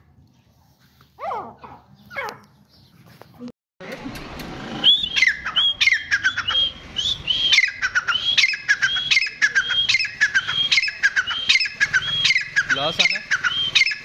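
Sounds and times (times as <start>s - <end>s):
francolin calling: 4.8s - 14.0s.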